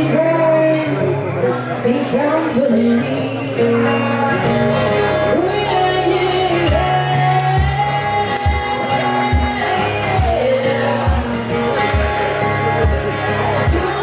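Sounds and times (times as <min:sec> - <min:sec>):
woman singing: 0:00.0 - 0:01.2, 0:01.8 - 0:04.0, 0:05.2 - 0:11.6, 0:13.6 - 0:14.0
acoustic guitar: 0:00.0 - 0:14.0.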